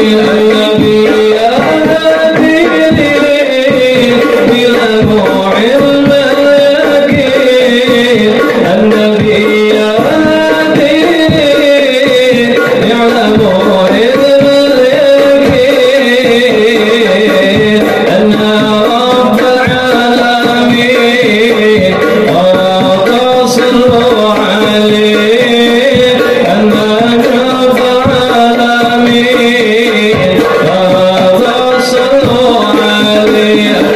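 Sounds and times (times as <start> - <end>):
devotional singing: 0.0 - 33.9
hand-struck frame drums: 0.0 - 33.9.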